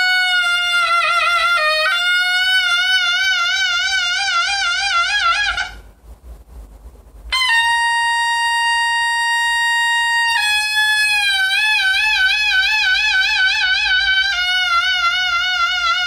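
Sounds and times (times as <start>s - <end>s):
double-reed shawm melody: 0.0s - 5.9s, 7.3s - 16.0s.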